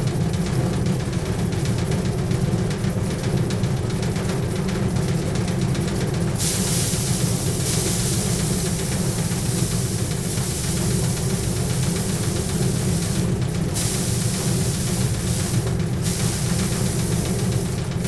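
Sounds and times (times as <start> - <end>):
thresher drum humming: 0.0 - 18.0
rushing hiss of grain beaten off: 6.4 - 18.0.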